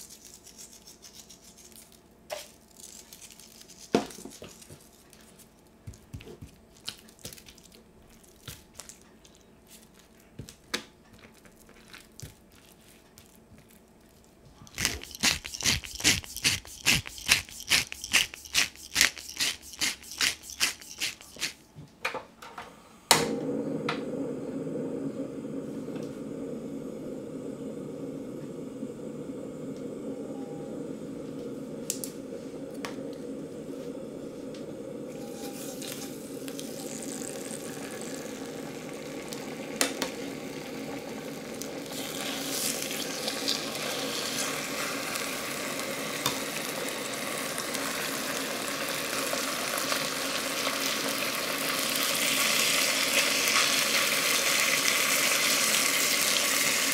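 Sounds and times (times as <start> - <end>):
chicken sizzling in hot oil: 14.7 - 21.6, 34.8 - 56.9
gas flame rushing: 23.1 - 49.9.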